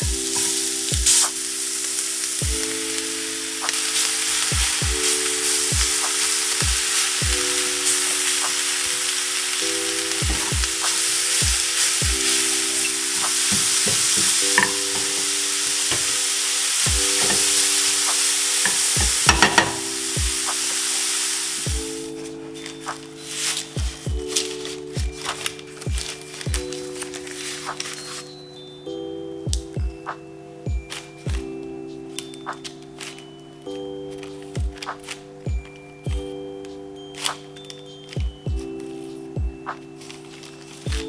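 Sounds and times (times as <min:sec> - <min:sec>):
sausage and spinach sizzling in skillet: 0:00.3 - 0:23.8.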